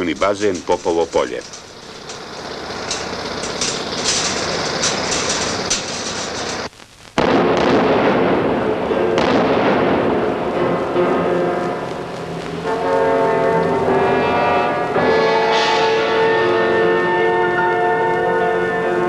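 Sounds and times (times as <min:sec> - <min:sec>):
scattered clicks: 0:00.0 - 0:07.2, 0:11.5 - 0:13.7
steady noisy hiss: 0:00.0 - 0:19.0
long rumbling roar: 0:01.4 - 0:06.7, 0:09.0 - 0:19.0
rock blast explosion: 0:01.5 - 0:14.3.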